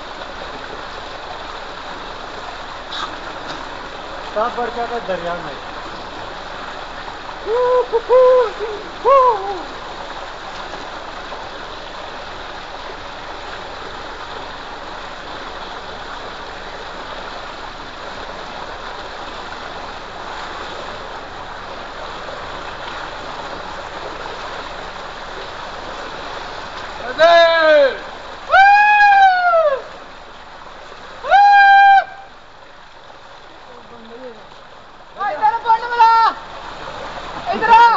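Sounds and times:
person calling out: 0:07.5 - 0:09.7, 0:35.2 - 0:36.4.

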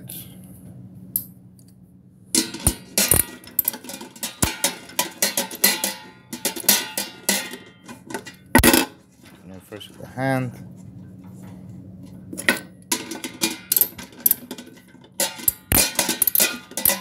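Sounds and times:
metal clanks inside urn: 0:02.4 - 0:09.0, 0:12.4 - 0:17.0.

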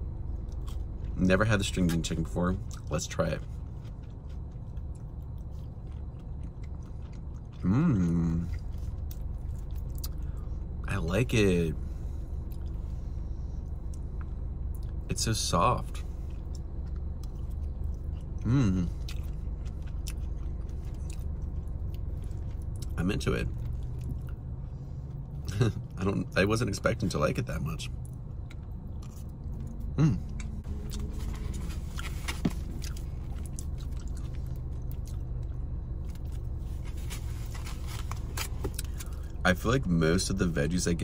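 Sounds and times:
steady low hum: 0:00.0 - 0:41.0
chewing food: 0:00.3 - 0:10.8, 0:12.4 - 0:15.1, 0:15.9 - 0:25.6, 0:27.9 - 0:39.4
hummed voice sound: 0:07.6 - 0:08.7, 0:18.4 - 0:19.1, 0:29.8 - 0:31.7.

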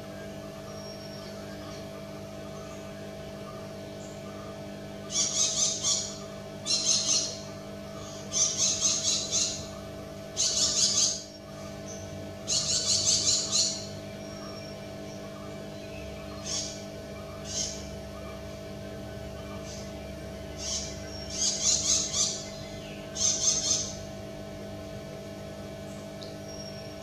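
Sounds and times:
steady low hum: 0:00.0 - 0:27.0
parakeet chattering: 0:05.0 - 0:14.6, 0:20.5 - 0:24.0.

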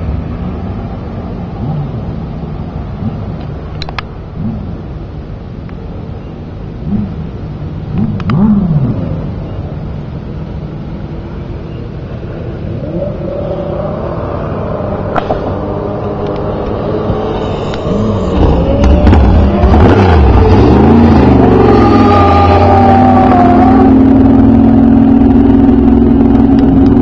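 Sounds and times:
race car engine revving: 0:06.8 - 0:09.5, 0:12.5 - 0:27.0.

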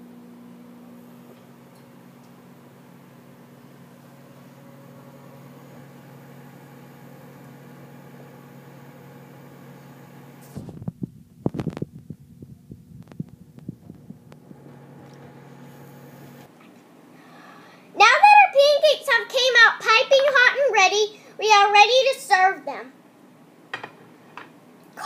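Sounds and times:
microwave oven humming: 0:00.0 - 0:17.9.

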